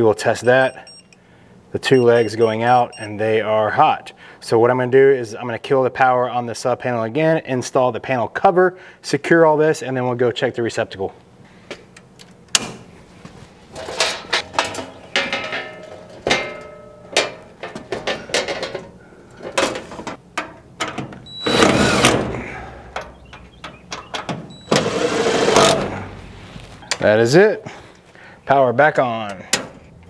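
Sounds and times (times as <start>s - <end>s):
metal cover clanking and rattling: 13.7s - 21.2s.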